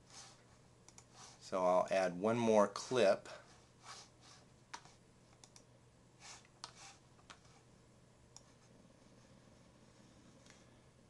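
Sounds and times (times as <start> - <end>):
faint computer clicks: 0.8 - 1.1, 4.7 - 5.7.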